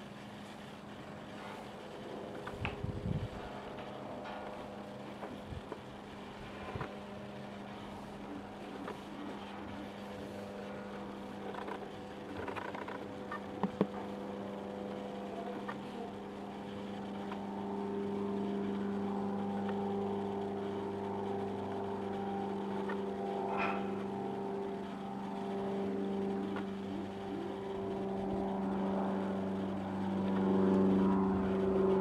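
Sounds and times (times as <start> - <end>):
motor humming: 0.0 - 32.0.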